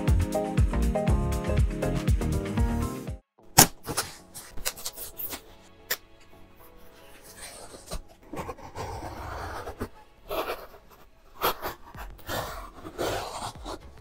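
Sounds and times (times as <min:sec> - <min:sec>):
knife rasping through tape: 0:07.0 - 0:14.0.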